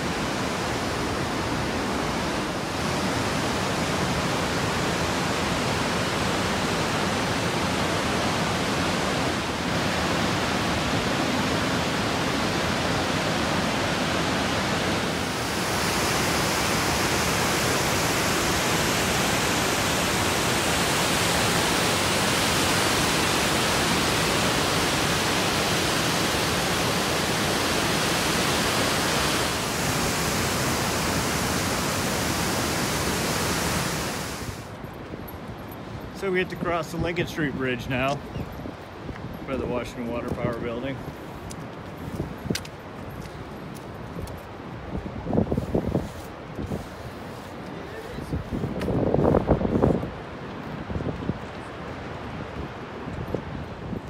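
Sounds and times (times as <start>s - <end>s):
whitewater rushing over falls: 0.0s - 34.8s.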